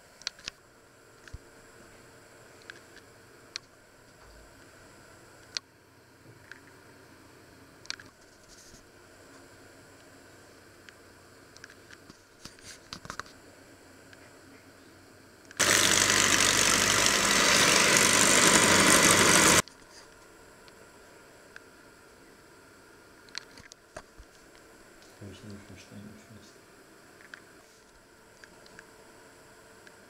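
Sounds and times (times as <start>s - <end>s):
electric hand mixer whirring: 15.6s - 19.6s.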